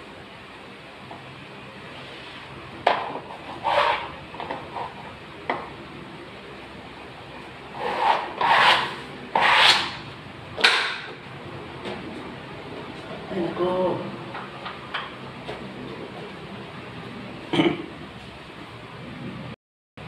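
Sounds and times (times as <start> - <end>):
sponge rubbing wallpaper: 7.8 - 9.9.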